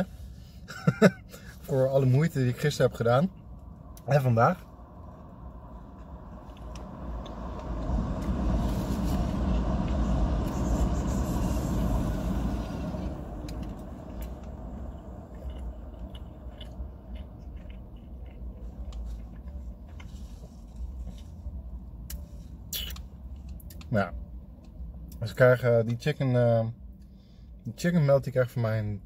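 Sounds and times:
low traffic rumble: 0.0 - 29.0
vehicle passing outside: 1.5 - 25.4
chewing clicks: 13.5 - 20.0.

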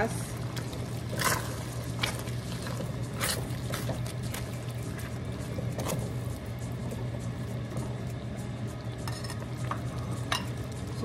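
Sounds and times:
steady low hum: 0.0 - 11.0
wet squishing and sloshing: 0.2 - 6.8
spatula scraping a wok: 1.1 - 4.0.

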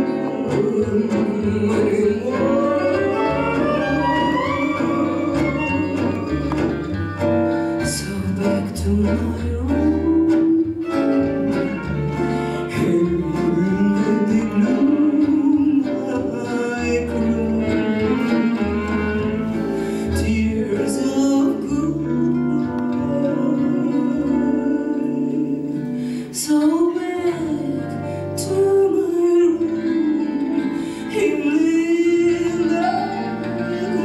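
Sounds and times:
woman singing: 0.0 - 7.0, 7.8 - 11.8, 12.6 - 34.0
acoustic guitars: 0.0 - 34.0
double bass: 0.0 - 34.0
violin: 0.0 - 34.0.

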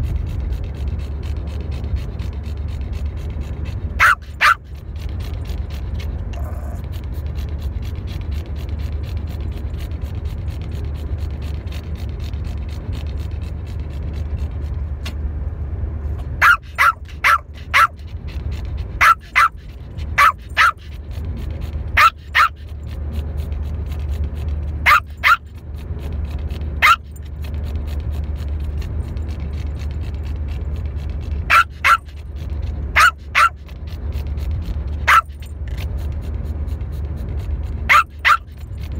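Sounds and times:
steady low rumble: 0.0 - 38.9
dog barking: 4.0 - 4.6, 16.4 - 18.0, 19.0 - 19.6, 20.2 - 20.9, 22.0 - 22.6, 24.8 - 25.4, 26.8 - 27.1, 31.5 - 32.2, 33.0 - 33.6, 35.0 - 35.4, 37.9 - 38.5.

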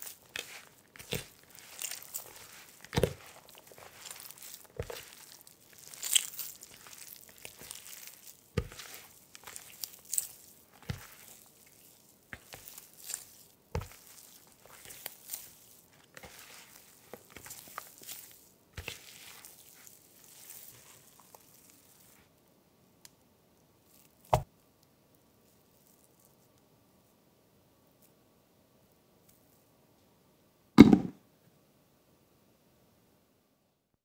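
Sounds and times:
dough crunching and crumbling: 0.0 - 22.4, 23.8 - 24.6, 25.4 - 26.6.

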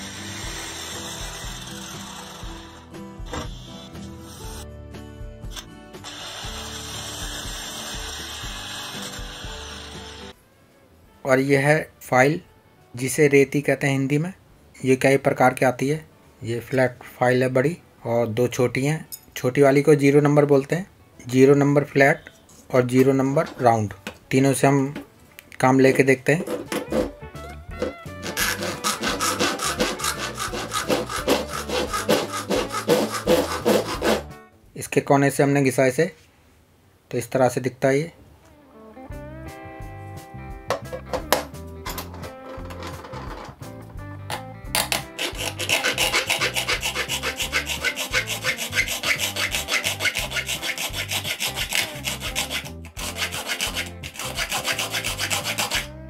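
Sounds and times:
hand file rasping on metal sheet: 0.0 - 4.6, 6.1 - 10.4, 27.8 - 34.4, 44.9 - 56.0.

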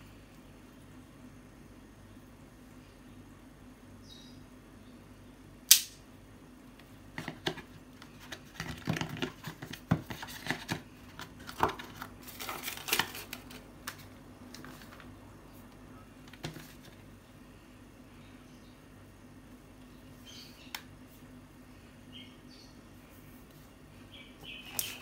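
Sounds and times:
sharp click: 5.7 - 6.0.

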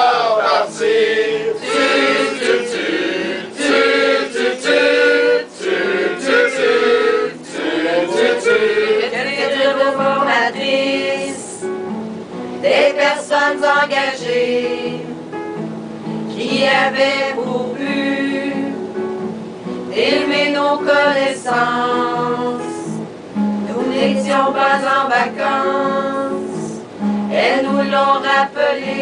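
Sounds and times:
mixed choir singing: 0.0 - 11.7, 12.6 - 15.2, 16.3 - 19.0, 19.9 - 23.0, 23.6 - 29.0
acoustic guitar: 0.0 - 29.0.

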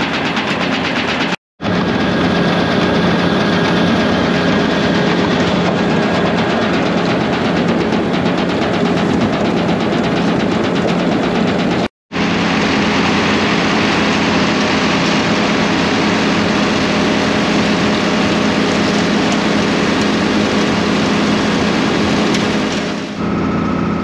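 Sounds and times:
tractor engine under load: 0.0 - 24.0
tub grinder chewing hay: 12.2 - 23.2.

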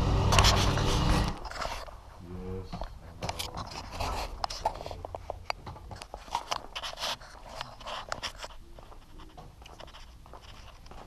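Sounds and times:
camera clicks and scrapes: 0.3 - 1.9, 6.0 - 8.6.

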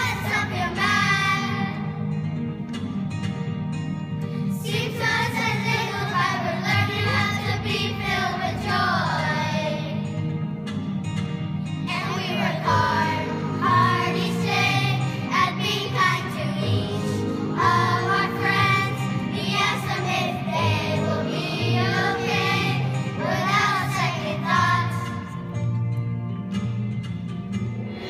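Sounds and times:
children singing in unison: 0.0 - 1.8, 11.9 - 25.2.

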